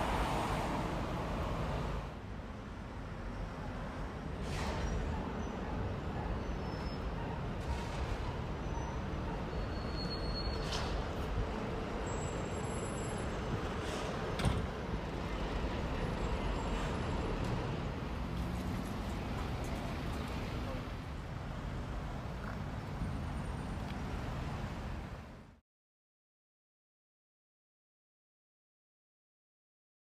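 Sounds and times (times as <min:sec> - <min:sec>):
rumble of passing traffic: 0:00.0 - 0:25.6
brief high squeals: 0:09.5 - 0:10.8.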